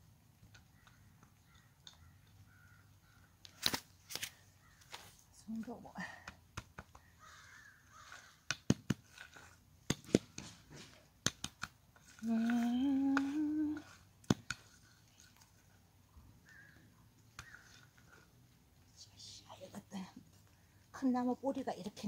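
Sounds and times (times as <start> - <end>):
wooden board scraping soil: 7.4 - 15.9
woman humming: 12.2 - 13.9.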